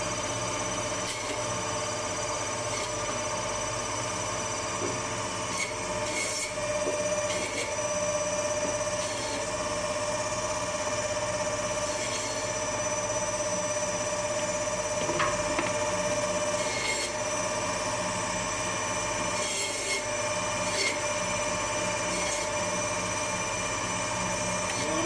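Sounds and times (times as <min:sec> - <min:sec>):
band saw whining: 0:00.1 - 0:25.0
saw rasping through bone: 0:01.0 - 0:01.5, 0:02.6 - 0:03.1, 0:05.5 - 0:07.8, 0:08.8 - 0:09.6, 0:11.8 - 0:12.6, 0:16.5 - 0:17.2, 0:19.3 - 0:21.1, 0:22.0 - 0:22.7, 0:24.6 - 0:25.0.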